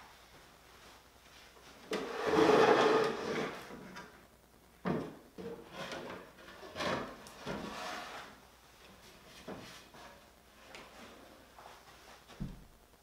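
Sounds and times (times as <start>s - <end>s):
wooden cabinet scraping on bench: 1.9s - 3.8s, 5.5s - 8.4s.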